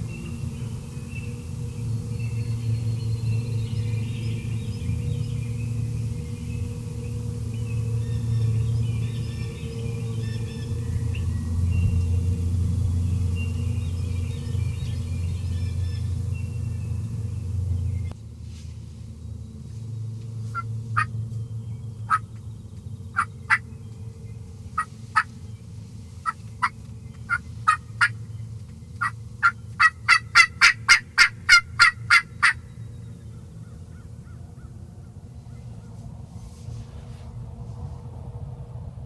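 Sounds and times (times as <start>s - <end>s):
low steady rumble: 0.0s - 39.0s
turkeys clucking and yelping: 20.6s - 21.1s, 23.2s - 23.6s, 26.2s - 28.2s, 29.0s - 32.6s.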